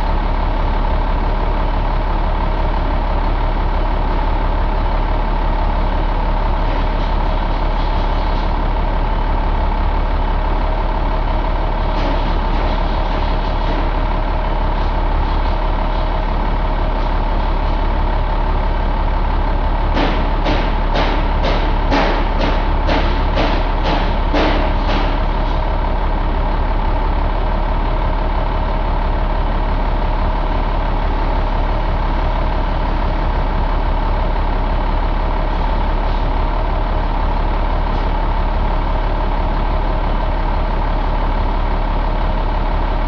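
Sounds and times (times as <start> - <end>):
diesel engine idling: 0.0 - 43.0
sharp knocks: 19.9 - 25.2.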